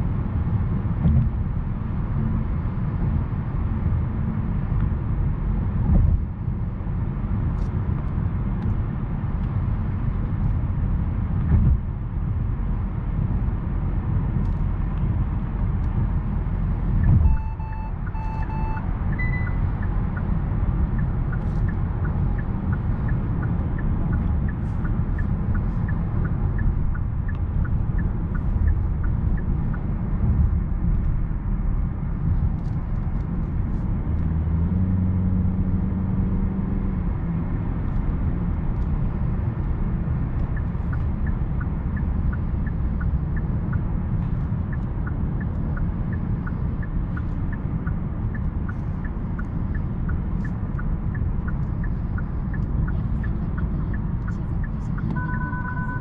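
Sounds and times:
car cabin road and engine rumble: 0:00.0 - 0:56.0
turn signal ticking: 0:13.0 - 0:35.3, 0:37.6 - 0:56.0
double beep: 0:17.0 - 0:20.3, 0:54.6 - 0:56.0.

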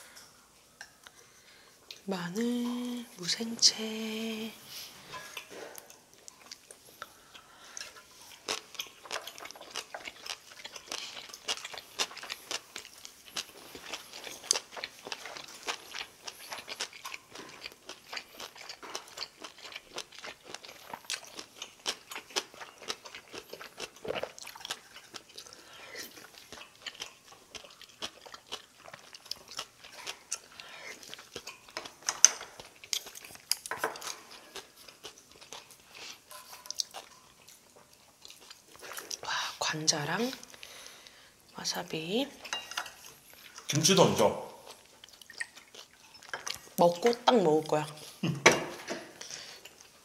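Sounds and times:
crisp crunchy chewing: 0:05.3 - 0:39.3.

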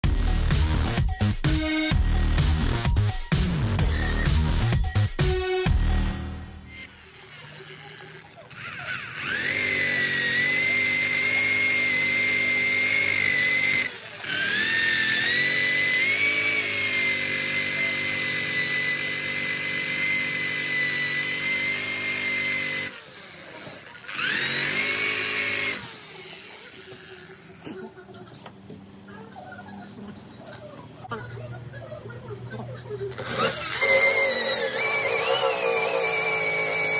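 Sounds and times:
power tool whining: 0:03.6 - 0:28.4, 0:33.0 - 0:36.9.

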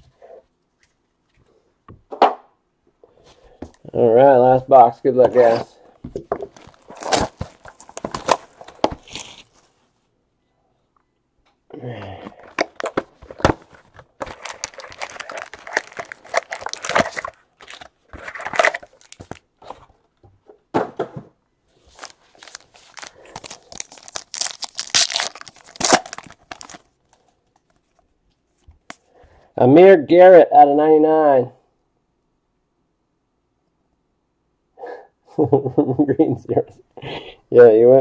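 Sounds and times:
cardboard tearing: 0:06.5 - 0:09.6, 0:12.5 - 0:19.4, 0:21.9 - 0:26.8
foil wrappers crinkling: 0:06.5 - 0:09.8, 0:12.4 - 0:19.5, 0:21.8 - 0:28.0.

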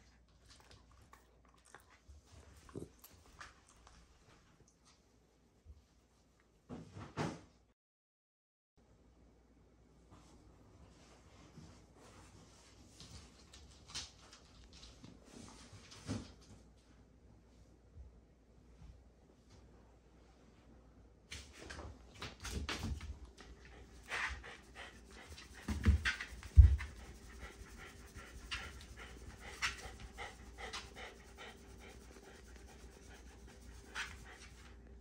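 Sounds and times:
dog panting: 0:23.3 - 0:34.9.

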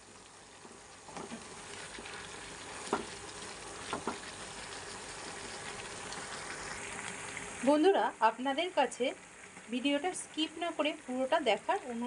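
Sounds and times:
food sizzling in a pan: 0:00.0 - 0:12.0.

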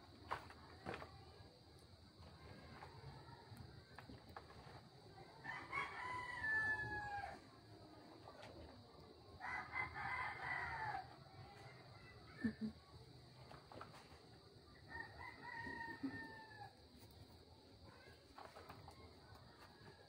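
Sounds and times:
rooster crowing: 0:05.4 - 0:07.4, 0:09.4 - 0:11.2, 0:14.9 - 0:16.8.

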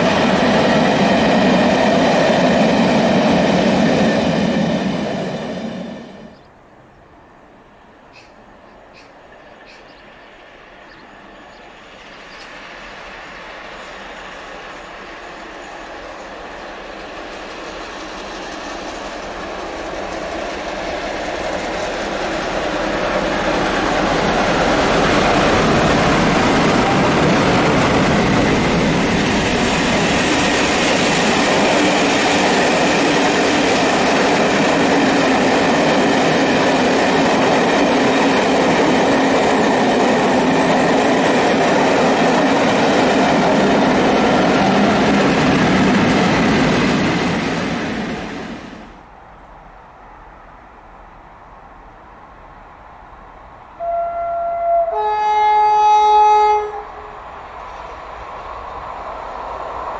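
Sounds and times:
train wheels rumbling and clattering: 0:00.0 - 0:06.5, 0:08.9 - 0:48.9.

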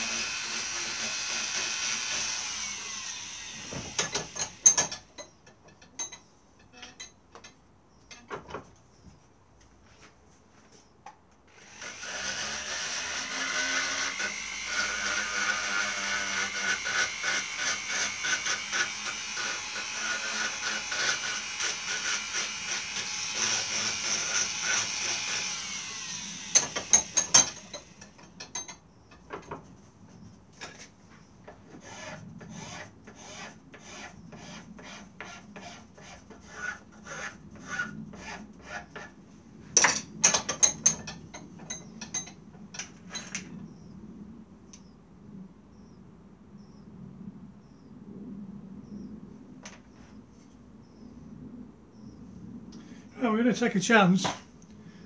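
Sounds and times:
rotary tool grinding wood: 0:00.0 - 0:05.0, 0:11.5 - 0:28.2, 0:31.5 - 0:39.2.

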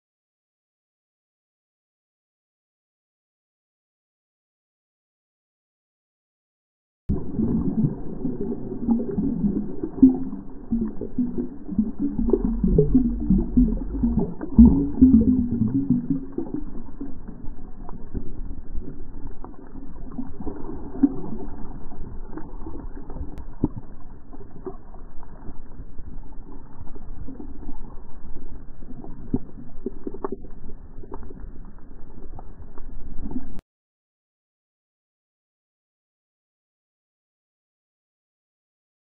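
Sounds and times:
muffled underwater rumble: 0:07.1 - 0:33.6.

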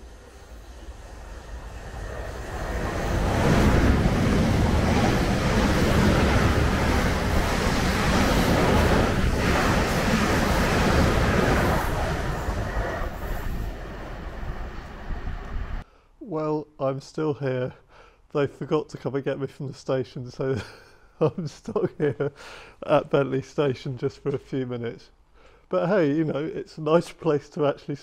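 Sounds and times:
passenger train passing: 0:00.0 - 0:15.8.

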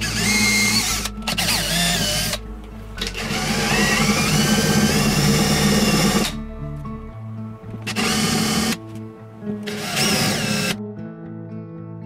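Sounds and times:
cordless drill whining: 0:00.0 - 0:06.4, 0:07.7 - 0:09.0, 0:09.6 - 0:10.8.

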